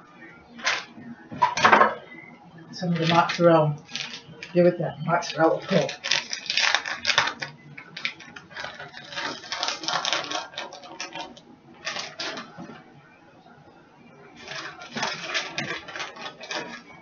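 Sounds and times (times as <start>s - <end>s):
kitchen clicking and rustling: 5.2s - 12.8s, 14.4s - 17.0s.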